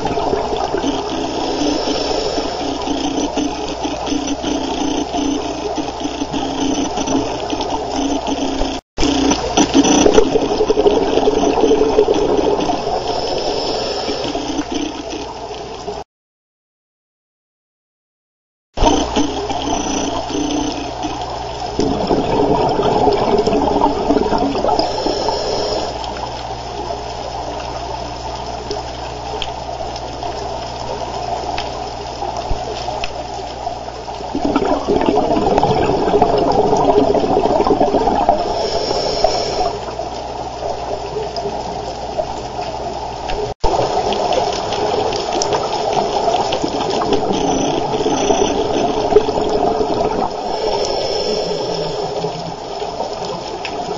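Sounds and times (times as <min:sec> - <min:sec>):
underwater regulator breathing bubbles: 0:00.0 - 0:15.4, 0:21.8 - 0:26.2, 0:34.3 - 0:40.0, 0:45.4 - 0:52.6.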